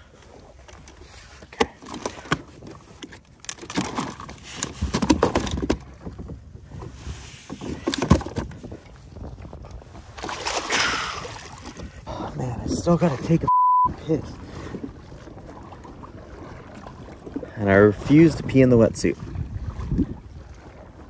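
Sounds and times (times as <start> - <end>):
water sounds: 0.0 - 21.0
gear knocking against kayak hull: 1.5 - 6.9.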